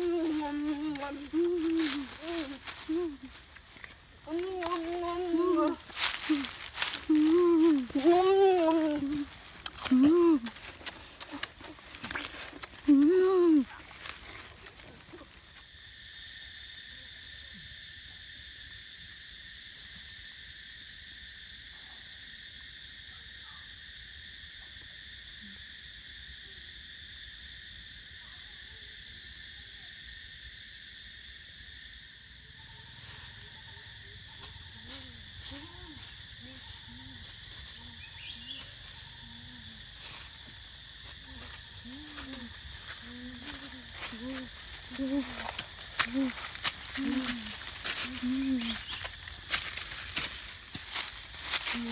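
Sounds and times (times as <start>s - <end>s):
leaves and branches crackling: 0.0s - 15.6s, 34.4s - 51.9s
insect drone: 0.0s - 51.9s.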